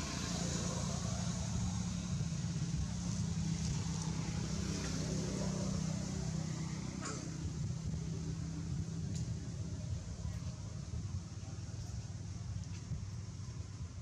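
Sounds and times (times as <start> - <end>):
low engine drone: 0.0 - 14.0.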